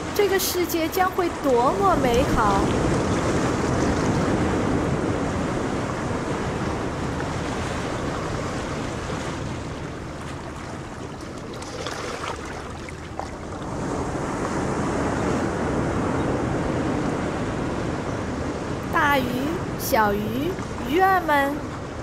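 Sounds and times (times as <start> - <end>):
wind buffeting microphone: 0.0 - 19.0
small wet splashes: 10.2 - 13.8.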